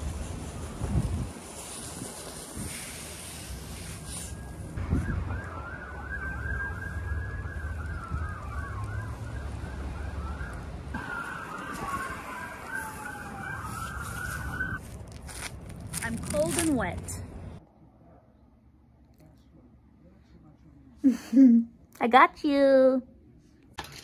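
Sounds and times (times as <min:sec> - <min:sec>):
police sirens: 0:04.4 - 0:14.9.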